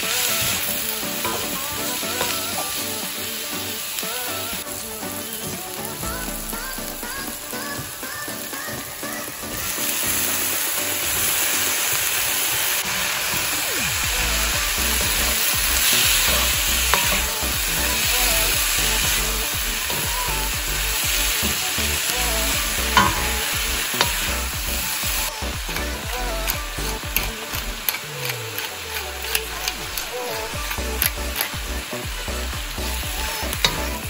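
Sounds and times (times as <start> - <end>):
vegetables sizzling in oil: 0.0 - 34.0
spatula tapping a pan: 16.9 - 17.4, 22.9 - 24.4.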